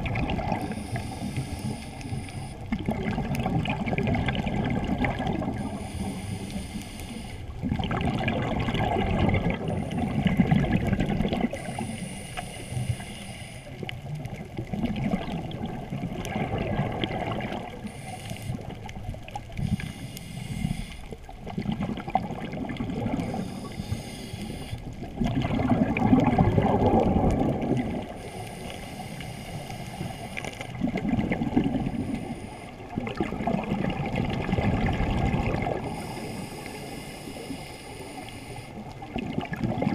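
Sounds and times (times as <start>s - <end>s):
gurgling exhaled bubbles: 0.0s - 12.0s, 13.6s - 28.8s, 29.6s - 36.9s, 38.8s - 39.9s
hissing regulator inhalations: 0.6s - 2.8s, 5.6s - 7.6s, 11.5s - 13.9s, 17.7s - 21.2s, 23.3s - 25.0s, 28.0s - 30.8s, 31.8s - 32.9s, 35.8s - 39.0s.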